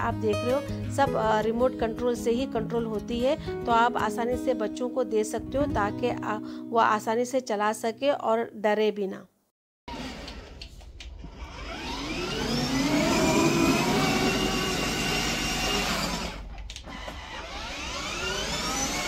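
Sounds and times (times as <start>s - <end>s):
toy car motor revving: 11.3s - 19.0s.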